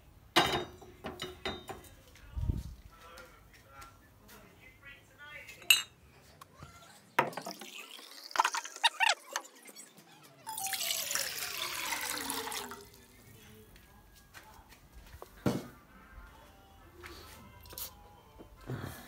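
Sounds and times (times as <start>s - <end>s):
water pouring into a pot: 7.4s - 8.8s, 10.5s - 13.0s.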